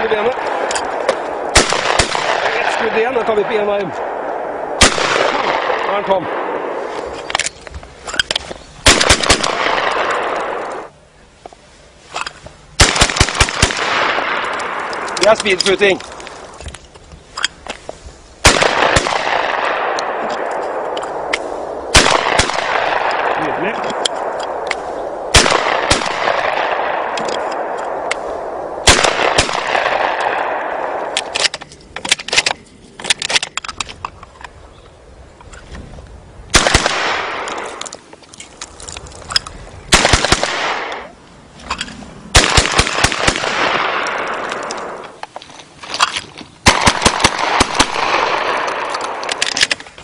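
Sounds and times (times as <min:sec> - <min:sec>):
shotgun blasts with echo: 0:00.0 - 0:06.9, 0:08.8 - 0:10.9, 0:12.8 - 0:16.0, 0:18.4 - 0:31.4, 0:36.5 - 0:37.8, 0:39.9 - 0:41.1, 0:42.3 - 0:45.1, 0:46.6 - 0:49.5.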